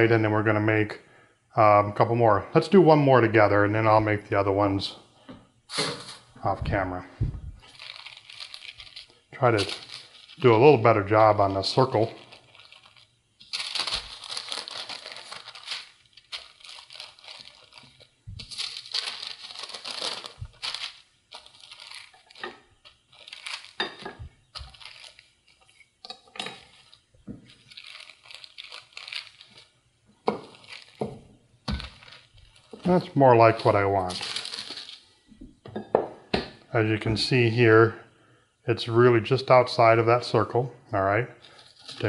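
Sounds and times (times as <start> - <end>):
parchment paper crinkling: 7.6 - 35.2, 41.4 - 42.0.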